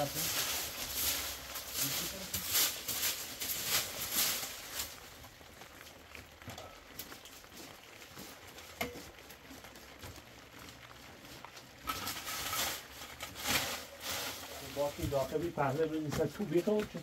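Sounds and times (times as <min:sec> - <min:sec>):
broom sweeping dry leaves: 0:00.0 - 0:05.1, 0:11.8 - 0:16.8.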